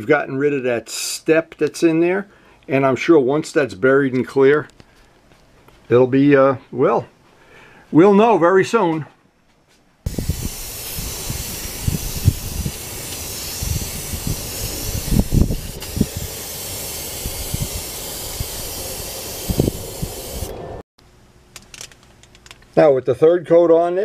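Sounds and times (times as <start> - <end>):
airbrush hissing: 10.1 - 20.8.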